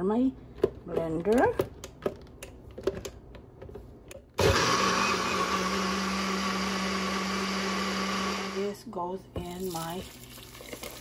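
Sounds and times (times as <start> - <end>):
blender running: 4.4 - 8.8.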